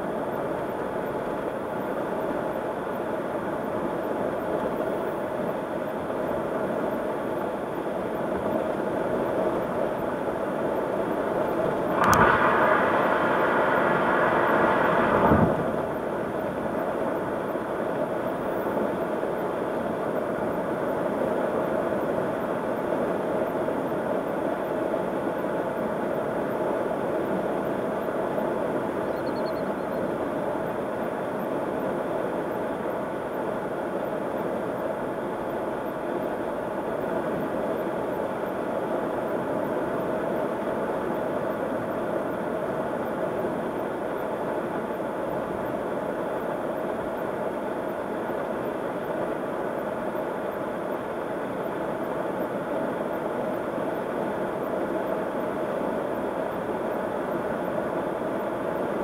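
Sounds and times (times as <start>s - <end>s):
low engine hum: 11.4s - 17.4s.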